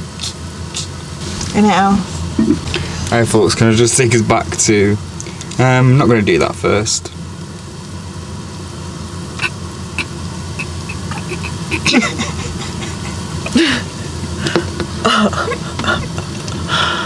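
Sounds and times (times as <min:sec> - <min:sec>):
pot of water heating rumble: 0:00.0 - 0:17.0.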